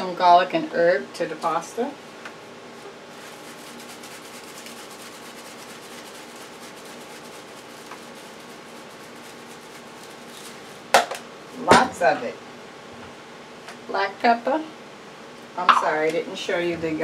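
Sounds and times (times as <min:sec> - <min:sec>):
seasoning shaken from shaker: 0:03.1 - 0:10.9.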